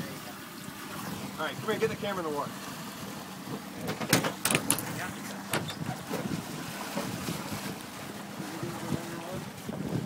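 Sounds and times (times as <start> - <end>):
outboard motor idling hum: 0.0 - 10.0
water sloshing against hull: 0.0 - 10.0
water splashes: 0.0 - 10.0
sharp knocks: 3.9 - 4.9
wind on microphone: 4.9 - 10.0.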